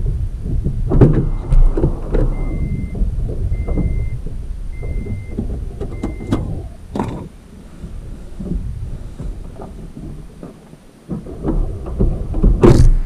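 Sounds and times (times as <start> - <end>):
knocks: 0.0 - 13.0
truck rumbling over rocky track: 0.0 - 13.0
reversing beeper: 1.2 - 6.8.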